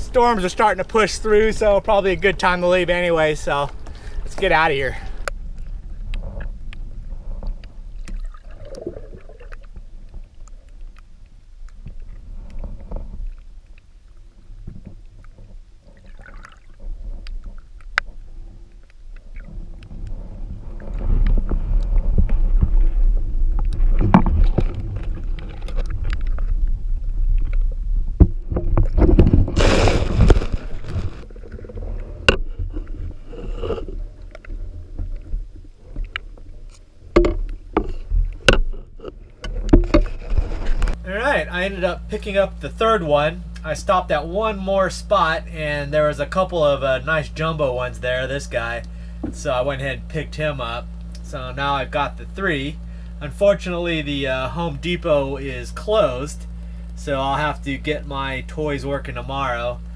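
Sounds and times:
underwater rumble of moving water: 0.0 - 59.9
water rushing surge: 29.3 - 32.2.

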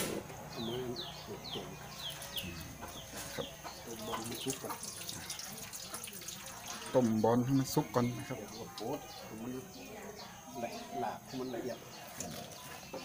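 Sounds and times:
chickens clucking: 0.0 - 13.0
chickens peeping: 0.0 - 13.0.

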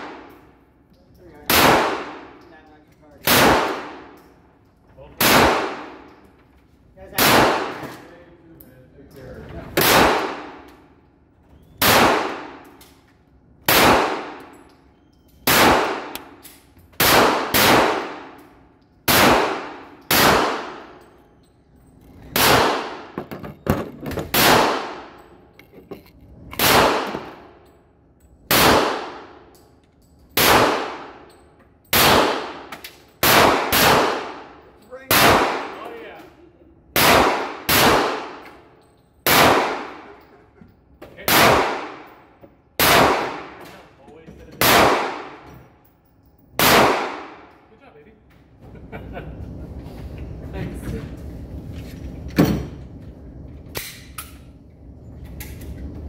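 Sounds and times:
handgun shots: 9.8 - 10.6, 11.8 - 12.8, 19.1 - 20.9, 22.3 - 23.2, 26.6 - 27.4, 31.9 - 34.4, 42.8 - 43.7, 46.6 - 47.5.

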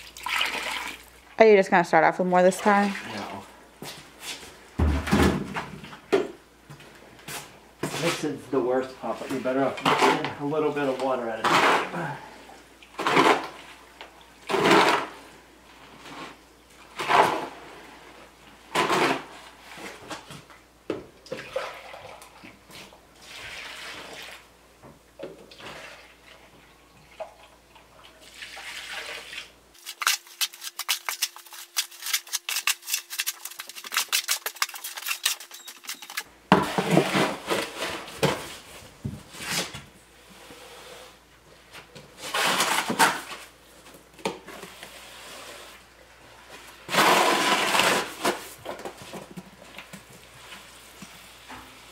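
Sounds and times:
water pouring from a jug: 0.0 - 1.2
hoe scraping wet concrete: 9.0 - 12.1, 14.5 - 15.2, 29.8 - 38.2, 46.9 - 48.5.

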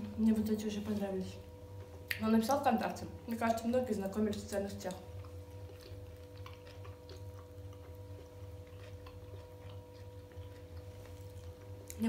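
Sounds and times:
steady low hum: 0.0 - 12.0
people chewing food: 3.4 - 12.0.

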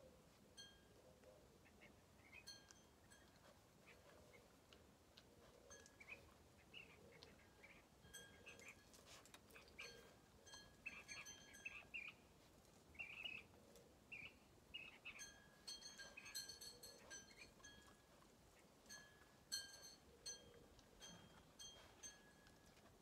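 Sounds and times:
faint bird chirps: 0.6 - 4.7, 5.4 - 12.3, 12.9 - 18.8.

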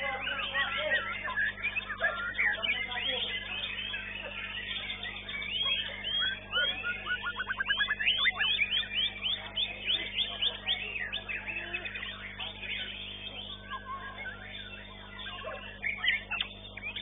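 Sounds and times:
bird singing whistles: 0.0 - 17.0
faint steady hum: 0.0 - 17.0.

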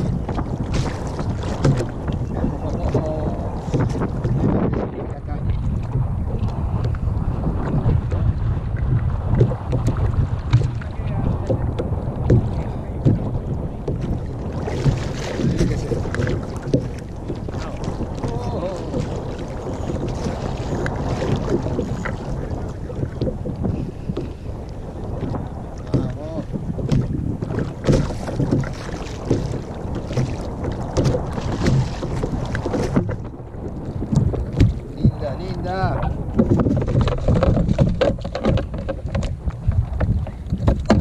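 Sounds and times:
water slapping against kayak: 0.0 - 41.0
wind rumbling on microphone: 0.0 - 41.0
fish splashing in water: 25.2 - 33.3.

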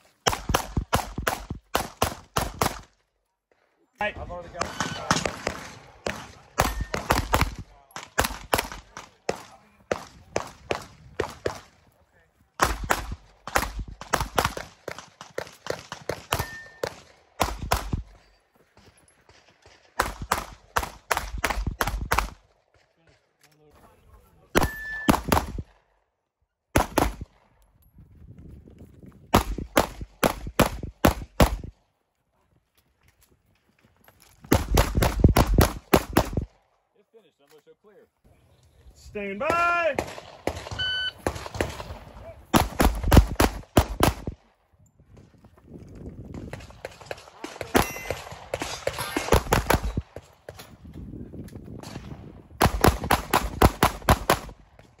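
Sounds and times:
pistol shots: 0.2 - 2.9, 4.5 - 11.8, 12.6 - 18.1, 19.3 - 22.5, 24.6 - 25.8, 26.7 - 27.4, 29.3 - 31.7, 34.5 - 36.5, 39.5 - 44.5, 46.5 - 50.6, 51.8 - 54.6.

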